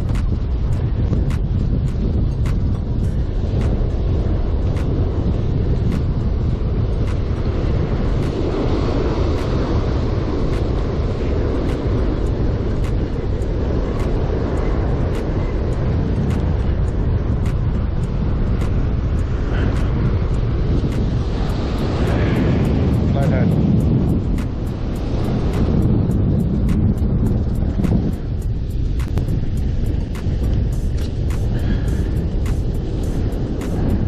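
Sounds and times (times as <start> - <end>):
breaking surf: 0.0 - 34.0
wind buffeting microphone: 0.0 - 34.0
faint sharp ticks: 24.1 - 34.0.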